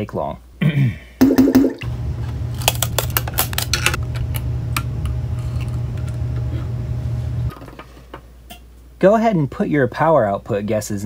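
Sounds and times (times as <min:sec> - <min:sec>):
steady low hum: 0:01.5 - 0:07.6.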